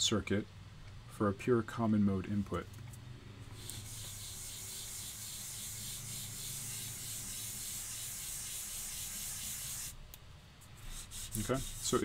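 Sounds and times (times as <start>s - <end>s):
eraser rubbing on whiteboard: 3.6s - 10.0s, 10.7s - 12.0s.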